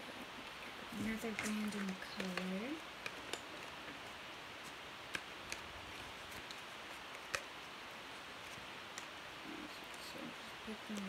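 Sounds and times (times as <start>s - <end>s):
faint room hiss: 0.0s - 11.0s
pencils clicking together: 1.1s - 3.8s.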